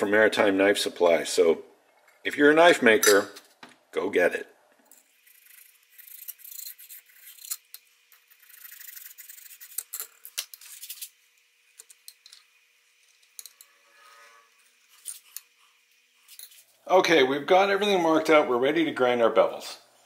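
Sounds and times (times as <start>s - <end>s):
scribe scratching metal: 5.1s - 11.1s.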